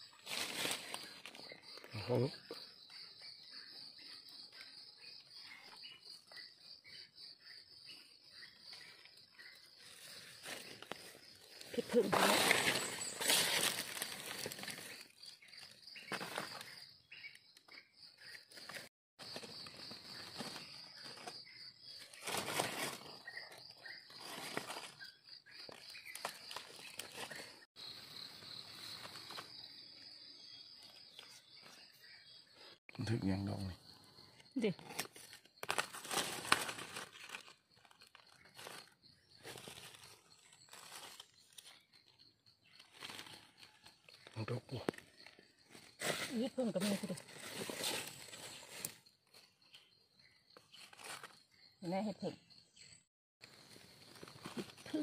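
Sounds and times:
leaf litter and soil rustling: 0.1s - 1.9s, 8.8s - 17.4s, 18.6s - 27.7s, 34.6s - 49.2s, 50.7s - 51.4s, 53.5s - 55.0s.

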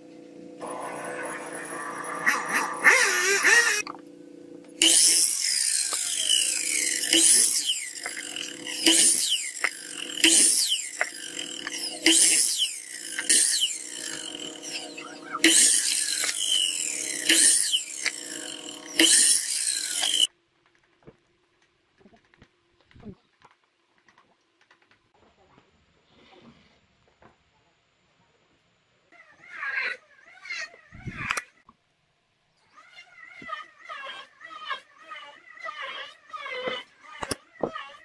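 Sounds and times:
miter saw cutting wood: 0.6s - 4.0s, 4.7s - 20.3s.

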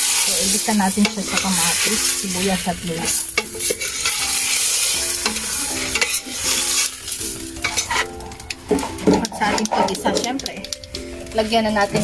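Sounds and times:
fish head sizzling in a pot: 0.0s - 12.0s
metal spoon scraping a pot: 1.0s - 8.2s, 8.8s - 10.3s.

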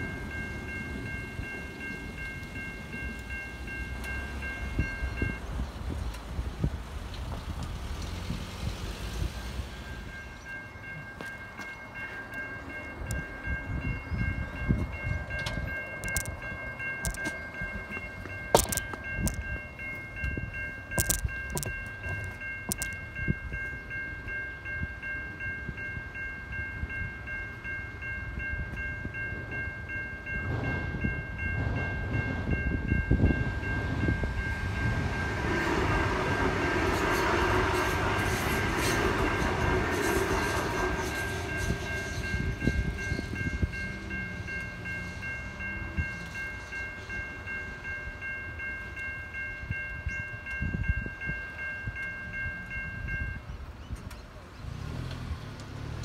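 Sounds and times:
train passing: 0.0s - 56.0s
level crossing bell ringing: 9.8s - 53.5s.

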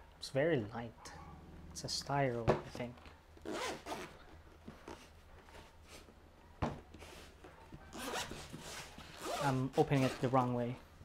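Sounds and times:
zipper rasping open: 3.4s - 4.3s, 7.9s - 10.3s.

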